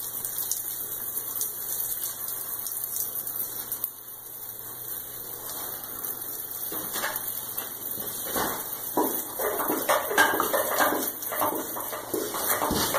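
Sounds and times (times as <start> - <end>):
liquid spatter and clatter: 6.6 - 12.9.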